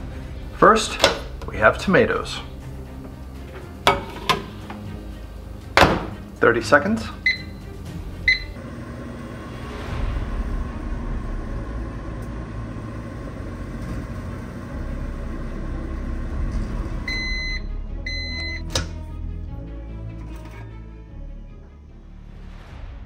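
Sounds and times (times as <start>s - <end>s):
microwave oven humming: 7.1s - 9.5s, 10.5s - 19.0s
microwave keypad beep: 7.2s - 7.7s, 8.3s - 8.6s, 17.1s - 18.8s
long beeps: 17.1s - 18.6s
microwave door unlatching click: 18.6s - 19.0s.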